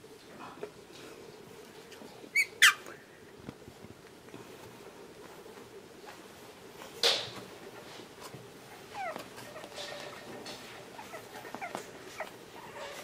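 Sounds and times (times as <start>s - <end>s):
puppies whimpering: 8.8s - 13.0s.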